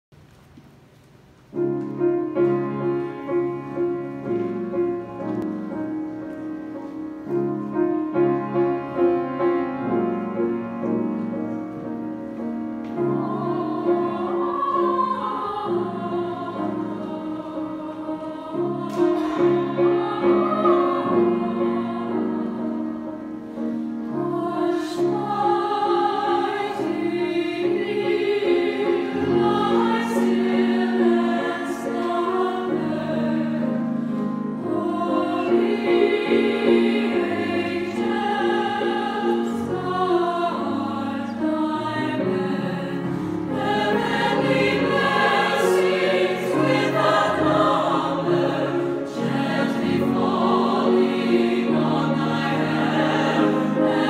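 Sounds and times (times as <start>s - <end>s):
mixed choir singing: 7.3s - 54.0s.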